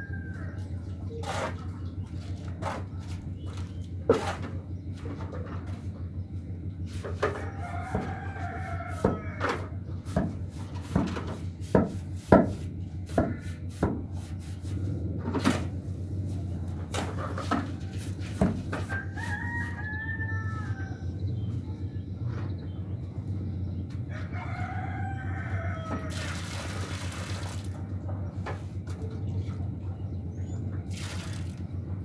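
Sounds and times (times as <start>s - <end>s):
rooster crowing: 0.0s - 0.8s, 7.2s - 9.8s, 17.5s - 21.4s, 24.1s - 26.8s
hoe scraping wet cement mix: 0.6s - 5.4s, 6.9s - 20.1s, 25.9s - 27.8s.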